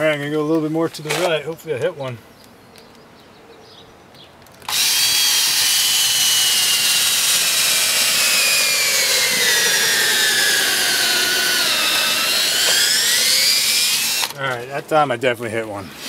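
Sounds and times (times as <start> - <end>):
cordless drill boring wood: 4.7 - 14.4.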